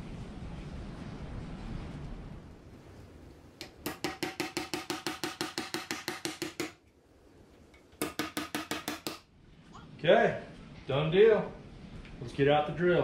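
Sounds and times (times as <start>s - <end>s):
hammer striking nails: 3.6s - 6.8s, 8.0s - 9.3s.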